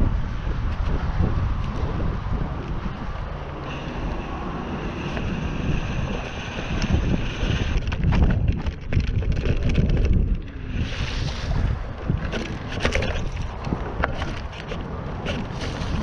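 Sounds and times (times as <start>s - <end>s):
bike rolling on dirt trail: 0.0s - 16.0s
wind buffeting microphone: 0.0s - 16.0s.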